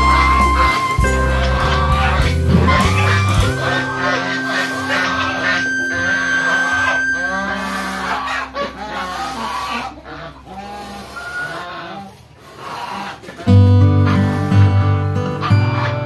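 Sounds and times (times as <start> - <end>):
background music: 0.0 - 10.0, 13.5 - 16.0
goose calling: 0.0 - 14.7, 15.4 - 16.0
poultry calling: 0.0 - 16.0.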